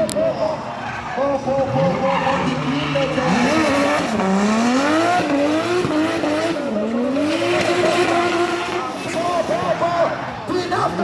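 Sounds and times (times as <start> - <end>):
car engine revving hard: 1.8 - 9.7.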